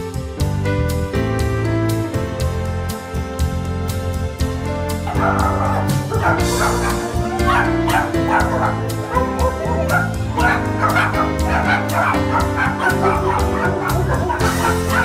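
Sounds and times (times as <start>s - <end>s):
background music with steady beat: 0.0s - 15.0s
dogs barking and yipping: 4.9s - 15.0s.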